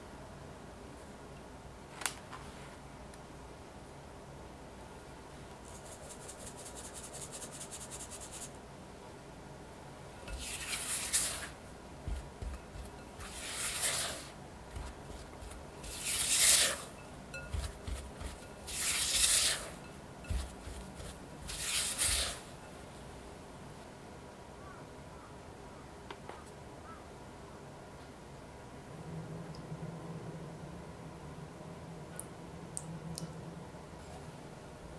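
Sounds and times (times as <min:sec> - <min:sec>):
spatula scraping a glass bowl: 0:10.3 - 0:22.6.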